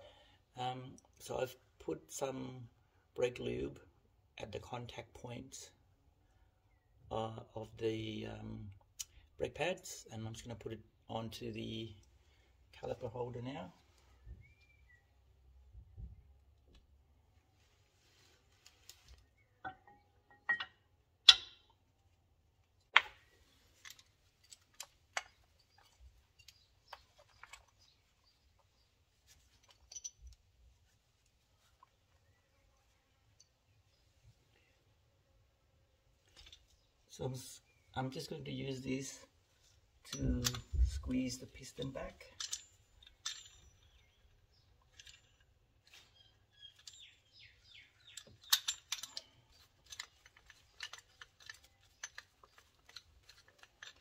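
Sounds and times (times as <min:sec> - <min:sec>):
bird chirps: 0:14.2 - 0:15.2, 0:45.9 - 0:48.7
metallic clicks of brake pads: 0:18.8 - 0:21.8, 0:22.8 - 0:28.8, 0:29.4 - 0:30.4, 0:39.6 - 0:41.1, 0:41.8 - 0:54.0.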